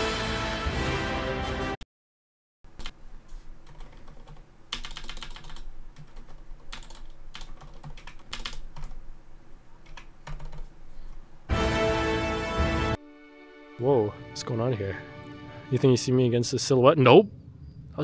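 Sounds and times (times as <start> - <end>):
keyboard typing: 2.7 - 3.0, 3.6 - 9.0, 9.8 - 10.7.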